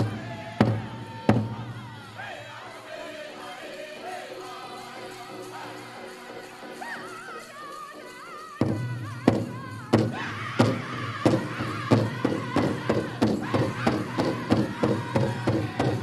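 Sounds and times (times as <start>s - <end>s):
big drum heavy beats: 0.0s - 2.0s, 8.6s - 16.0s
group singing in high voices: 0.0s - 16.0s.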